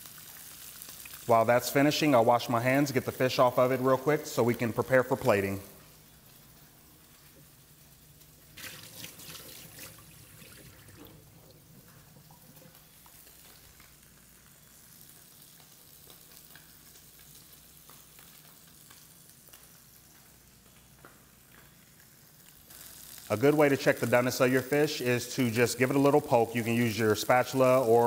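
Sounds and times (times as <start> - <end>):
fish sizzling in a frying pan: 0.0 - 10.5, 11.2 - 28.0
sink tap running: 8.6 - 12.8.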